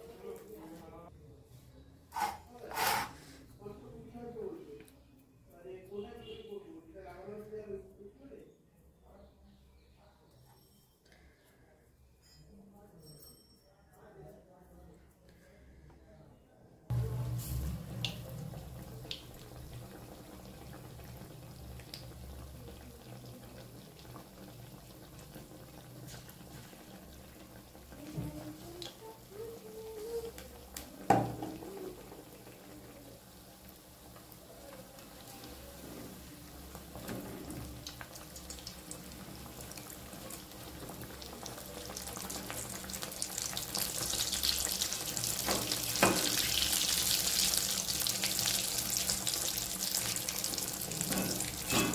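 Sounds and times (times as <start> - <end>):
food deep-frying in oil: 16.9 - 51.9.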